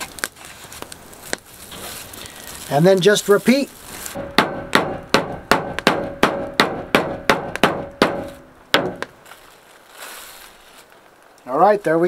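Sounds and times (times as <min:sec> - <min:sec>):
meat pounder striking meat: 0:04.2 - 0:09.1.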